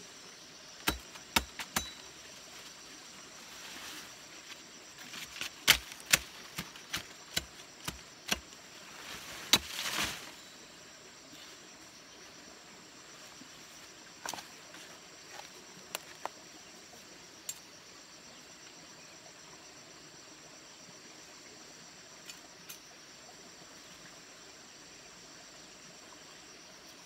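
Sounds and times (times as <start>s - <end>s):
leaves rustling: 1.6s - 10.7s.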